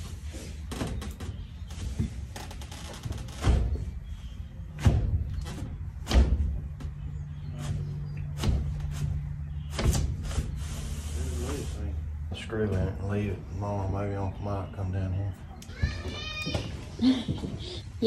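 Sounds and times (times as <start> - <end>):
window sash knocking: 4.8 - 6.6
window sash sliding: 8.4 - 11.1.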